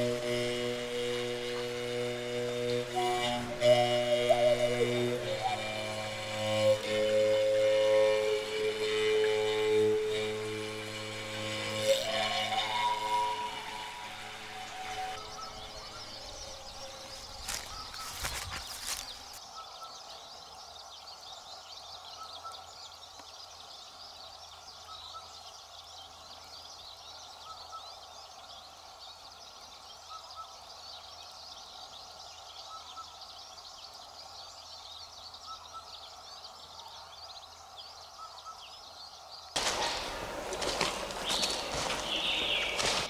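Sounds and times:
lower bird call: 0:00.0 - 0:10.6, 0:11.3 - 0:20.3, 0:39.6 - 0:43.0
high birdsong: 0:00.0 - 0:43.0.

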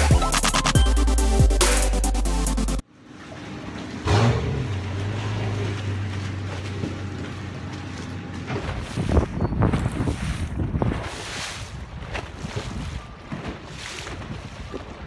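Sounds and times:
outboard engine idling: 0:03.4 - 0:08.9.

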